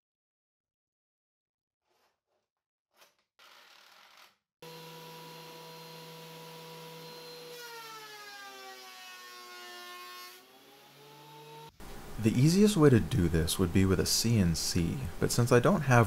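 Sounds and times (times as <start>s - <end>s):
thickness planer running: 4.6s - 9.2s.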